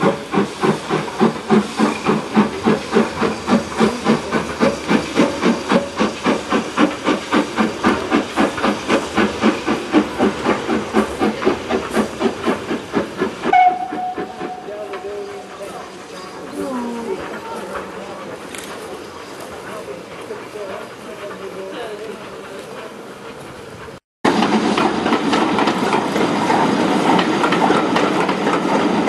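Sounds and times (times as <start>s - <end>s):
hiss of steam: 0.0s - 29.0s
steam locomotive exhaust chuffing: 0.0s - 29.0s.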